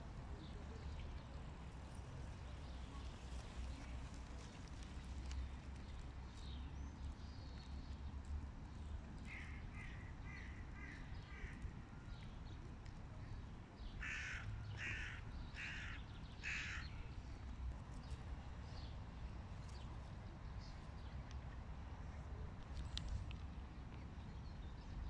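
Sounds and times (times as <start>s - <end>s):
crow cawing: 14.0s - 16.8s.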